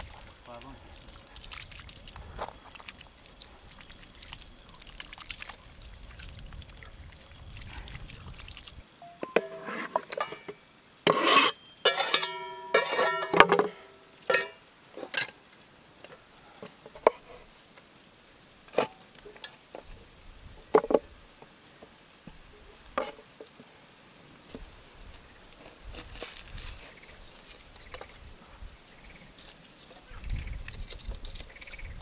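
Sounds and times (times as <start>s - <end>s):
onion skin crinkling: 25.5s - 27.8s.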